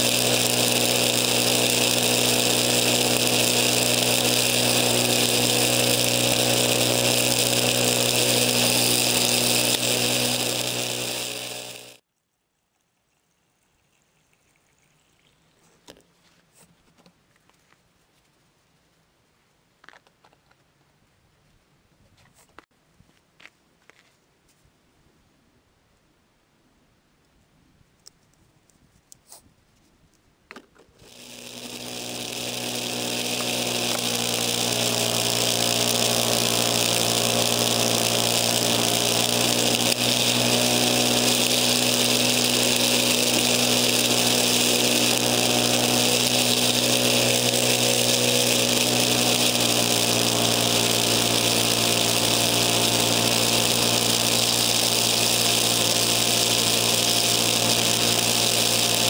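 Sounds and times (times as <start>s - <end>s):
snowblower engine running: 0.0s - 12.0s, 31.0s - 59.0s.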